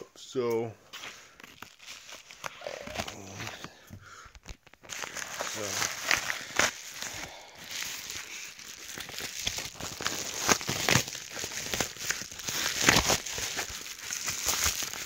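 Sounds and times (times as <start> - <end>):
packaging crinkling and rustling: 1.0 - 3.7, 4.3 - 15.0.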